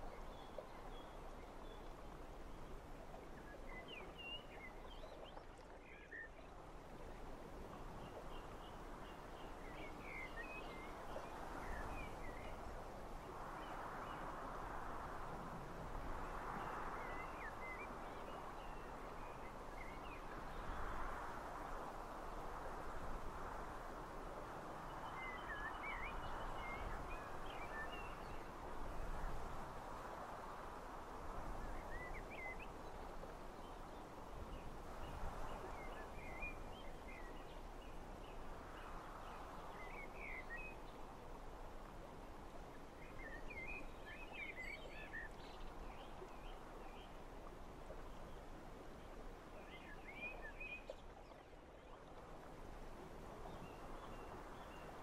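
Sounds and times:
wind blowing in gusts: 6.5 - 55.0.

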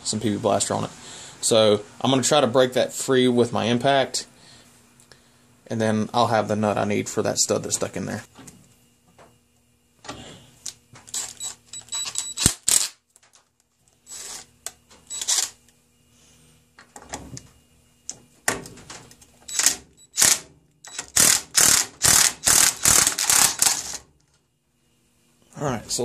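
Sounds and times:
impact driver hammering: 19.6 - 24.0.

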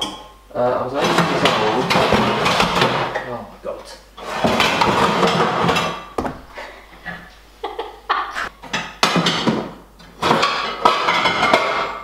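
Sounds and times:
pots and utensils knocking: 0.0 - 0.4, 1.0 - 3.3, 4.2 - 6.3, 8.6 - 12.0
drawers and cupboards rummaged: 1.0 - 3.2, 4.2 - 7.2, 8.6 - 12.0.

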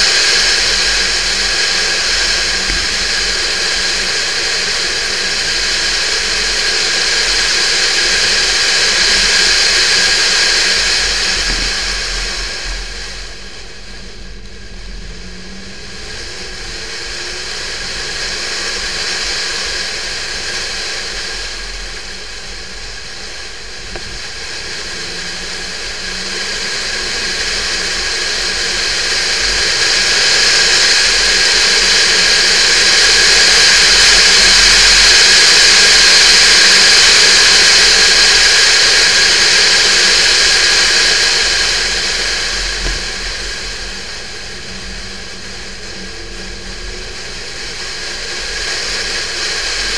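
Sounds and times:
faint car engine: 0.0 - 35.0
wind and road noise: 0.0 - 49.9.

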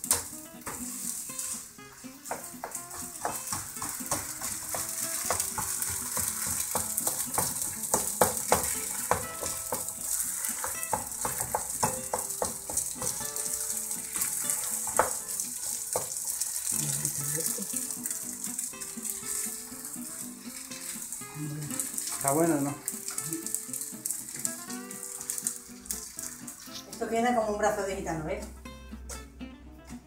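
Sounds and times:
utensil knocking against pan: 0.0 - 1.0, 2.2 - 16.3
dough sizzling in a frying pan: 0.0 - 27.2
spatula scraping a pan: 3.0 - 11.8, 12.6 - 27.0.

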